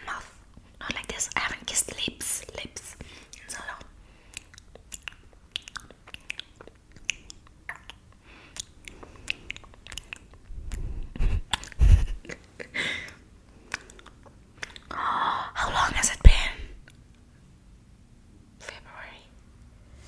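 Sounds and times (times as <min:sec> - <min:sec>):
wet sucking and licking sounds: 0:04.3 - 0:11.8.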